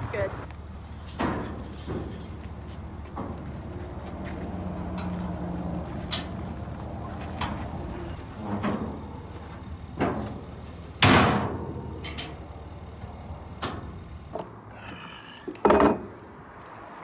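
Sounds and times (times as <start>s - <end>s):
metal ramps clanking and thumping: 1.0s - 2.4s, 3.1s - 3.6s, 8.3s - 12.4s, 15.5s - 16.2s.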